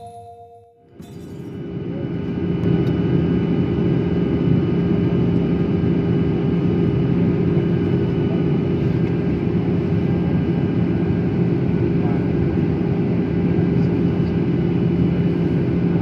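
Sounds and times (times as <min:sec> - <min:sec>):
steady high tones: 0:00.0 - 0:00.8.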